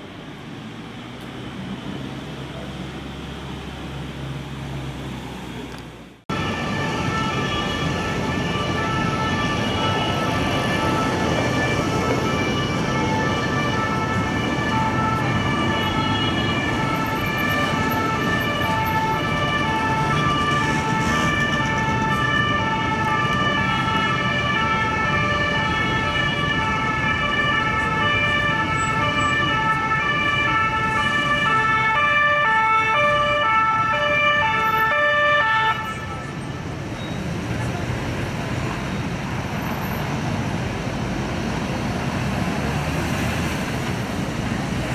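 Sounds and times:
traffic noise: 0:00.0 - 0:44.9
two-tone siren: 0:06.3 - 0:36.5.

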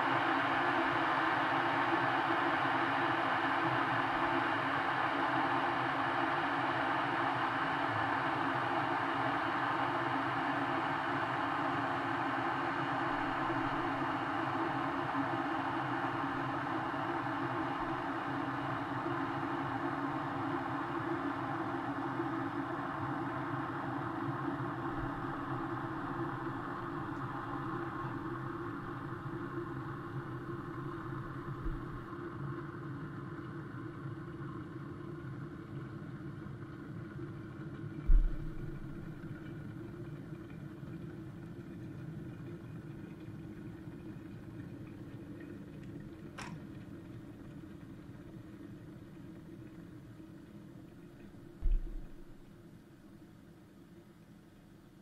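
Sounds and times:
electric kettle heating water: 0:00.0 - 0:55.0
thump: 0:38.1 - 0:39.0, 0:51.6 - 0:52.4.

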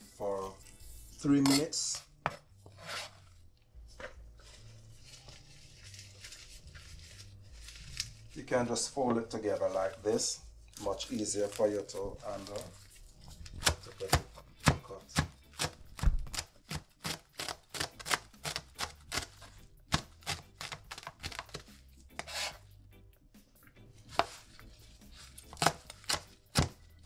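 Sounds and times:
knife chopping on cutting board: 0:13.6 - 0:19.3, 0:22.1 - 0:22.6, 0:24.1 - 0:24.5, 0:25.5 - 0:26.8.

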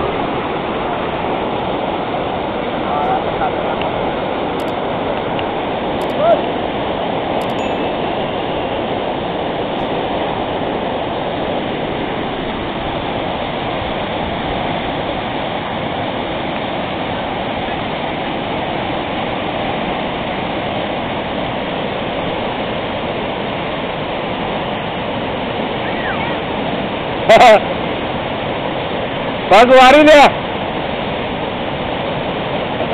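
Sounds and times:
river rapids rushing: 0:00.0 - 0:32.9.

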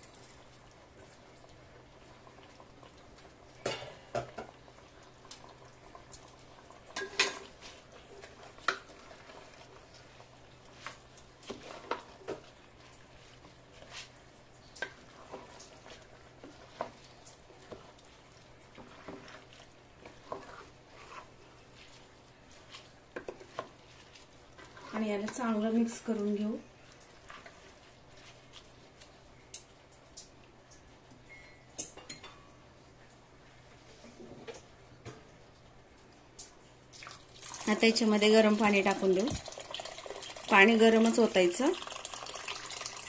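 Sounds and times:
spatula stirring rice in pot: 0:00.0 - 0:32.3.

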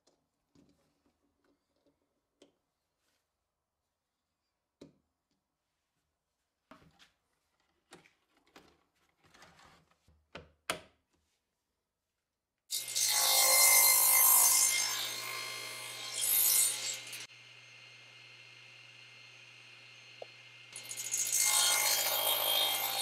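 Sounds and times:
table saw cutting wood: 0:12.7 - 0:23.0.

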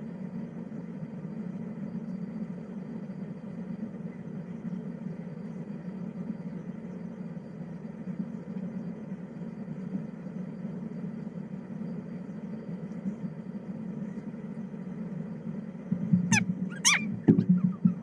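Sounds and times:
low hum: 0:08.0 - 0:18.0
animal high cries: 0:16.3 - 0:18.0.

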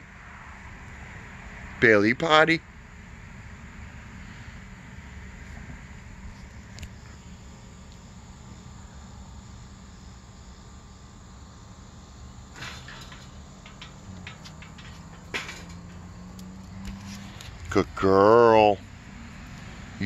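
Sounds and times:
insects chirring: 0:02.3 - 0:20.0
light clicks and rustles: 0:12.6 - 0:17.8.

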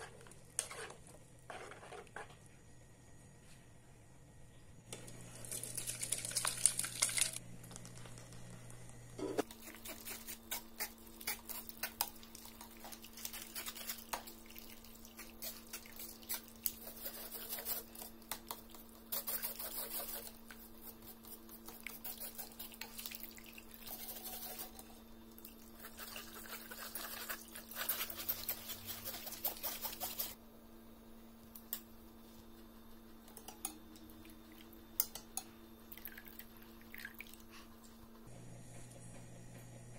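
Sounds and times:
liquid splashing into strainer: 0:05.4 - 0:07.4.

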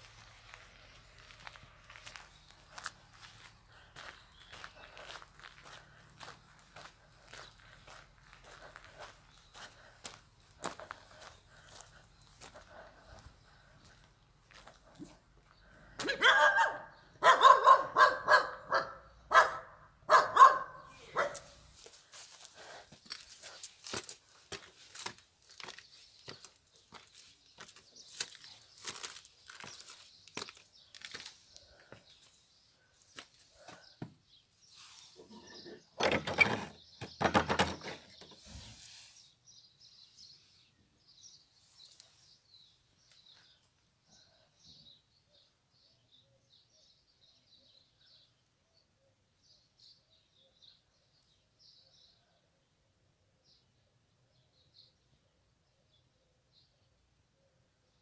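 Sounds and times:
dog barking: 0:16.0 - 0:21.6.

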